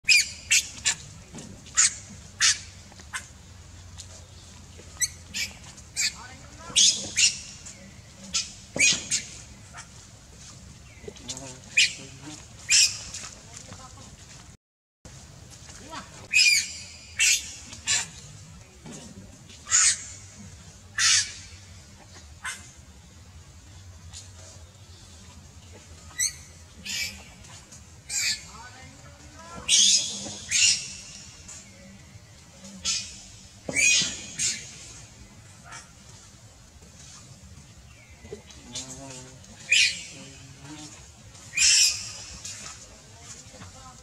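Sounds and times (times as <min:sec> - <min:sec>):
baby monkey screaming: 0:21.0 - 0:21.4, 0:29.7 - 0:31.0, 0:32.8 - 0:34.6
baby monkey squealing cries: 0:29.7 - 0:31.0.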